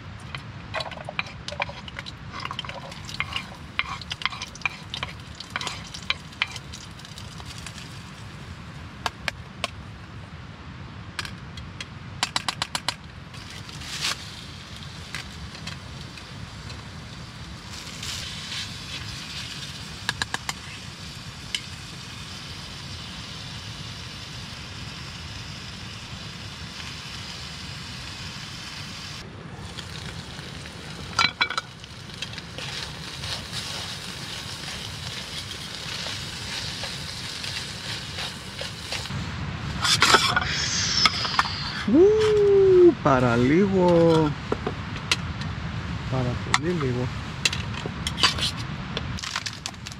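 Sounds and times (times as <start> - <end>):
pan clattering: 0.8 - 6.6
utensils clinking against pan: 0.8 - 6.6
meat sizzling in a frying pan: 1.2 - 8.9, 13.4 - 39.2.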